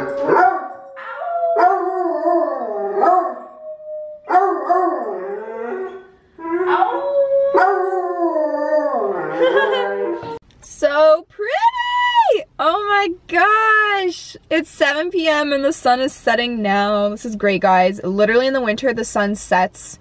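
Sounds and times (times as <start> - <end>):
dogs howling: 0.0 - 10.4.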